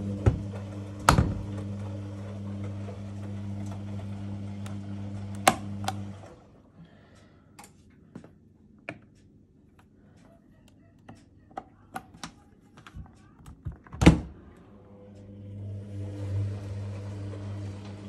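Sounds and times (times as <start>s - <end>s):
dishwasher motor humming: 0.0s - 6.7s, 13.6s - 18.0s.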